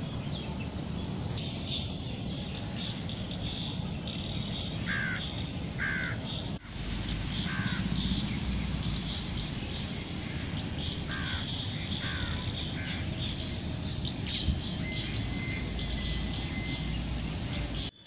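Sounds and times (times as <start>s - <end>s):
birds chirping: 0.0s - 18.0s
short falling bird calls: 4.8s - 9.3s, 10.3s - 13.4s.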